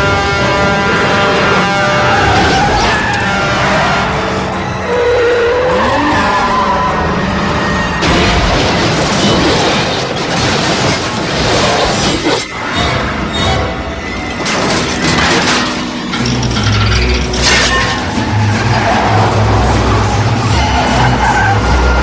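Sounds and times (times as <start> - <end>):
music: 0.0 - 22.0
car crash: 7.5 - 22.0
metal crashing: 8.0 - 22.0
glass shattering: 14.3 - 18.2.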